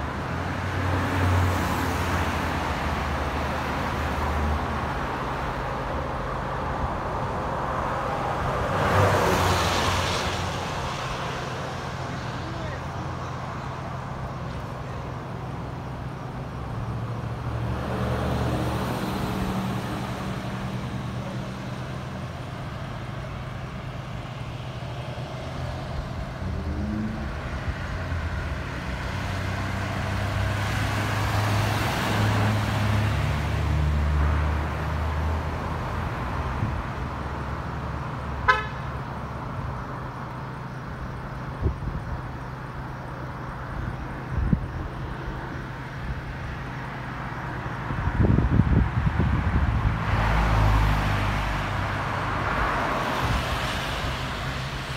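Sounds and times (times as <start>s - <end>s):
car engines passing: 0.0s - 54.9s
car horn toot: 38.4s - 38.9s.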